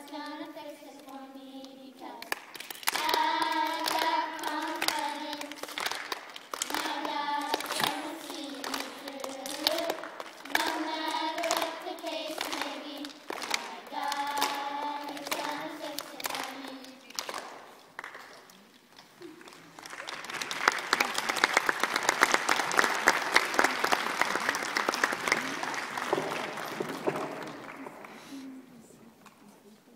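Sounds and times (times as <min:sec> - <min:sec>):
children clapping along: 0:01.6 - 0:28.4
audience applauding: 0:02.3 - 0:28.4
children singing: 0:02.9 - 0:06.0, 0:06.6 - 0:17.1.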